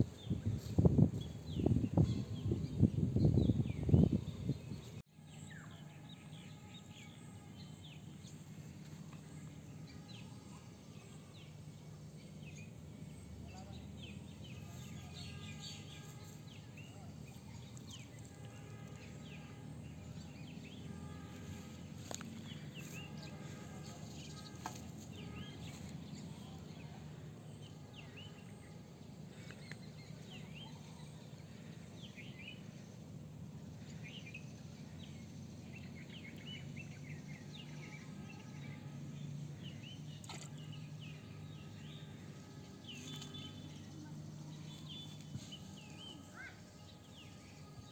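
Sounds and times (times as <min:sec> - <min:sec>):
low background hum: 0:00.0 - 0:47.9.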